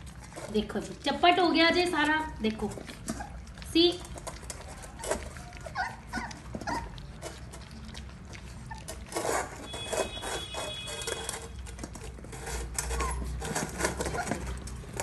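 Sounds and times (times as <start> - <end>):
puppies lapping and chewing: 0.0 - 15.0
puppy whimpers: 3.0 - 3.6, 4.5 - 7.8, 8.4 - 10.1, 12.8 - 14.7.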